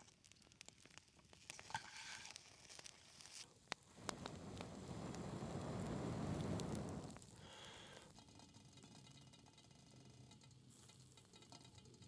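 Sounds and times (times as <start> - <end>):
campfire crackling and popping: 0.0 - 12.0
low rushing sound: 4.1 - 7.2.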